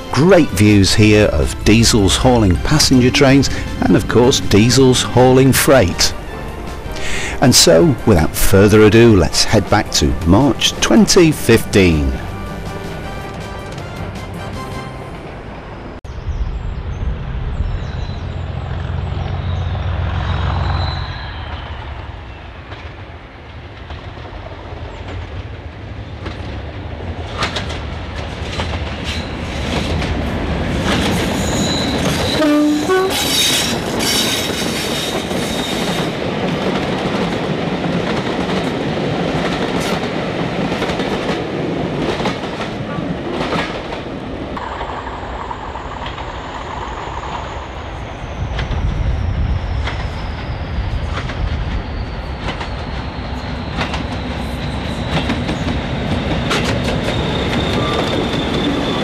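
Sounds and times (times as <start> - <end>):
diesel locomotive engine rumble: 0.0 - 59.0
train horn blast: 12.2 - 15.6, 31.5 - 33.8
train wheels clicking over rail joints: 27.2 - 47.5, 49.7 - 59.0
wheel squeal: 31.0 - 36.1, 46.8 - 59.0.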